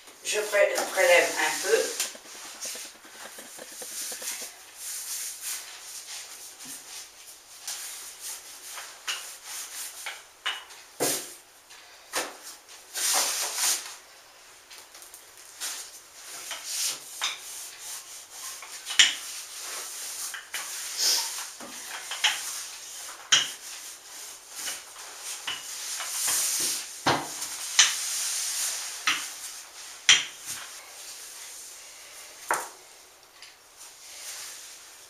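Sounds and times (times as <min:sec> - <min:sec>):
rolling pin rubbing and scraping dough: 0:00.2 - 0:10.3, 0:15.5 - 0:32.2.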